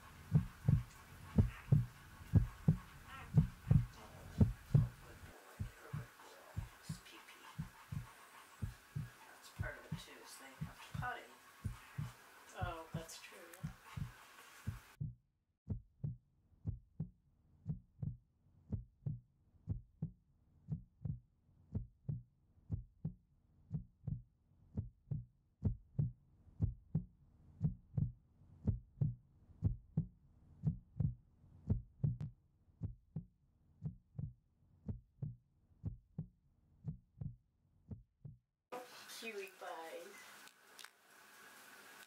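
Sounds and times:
faint low hum: 0.0 - 14.8
heartbeat-like thumping: 0.1 - 24.2, 24.8 - 38.4.

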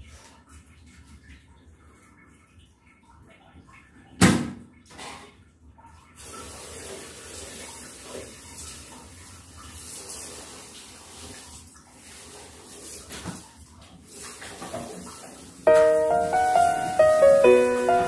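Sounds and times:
water running: 15.6 - 18.0.

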